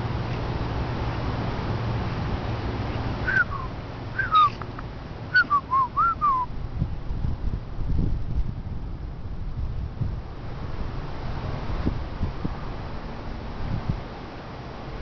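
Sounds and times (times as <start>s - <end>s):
whistled notes sliding down: 3.3s - 4.6s, 5.3s - 6.5s.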